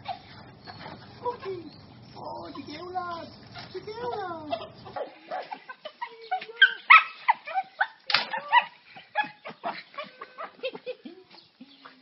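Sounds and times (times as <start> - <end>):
dog whining and yipping: 6.6 - 10.6.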